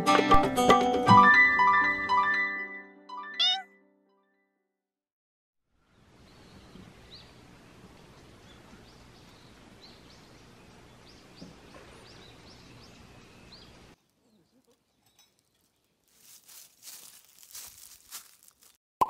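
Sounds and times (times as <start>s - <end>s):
small birds chirping: 5.8s - 18.8s
rustling and clicking handling noises: 14.0s - 18.8s.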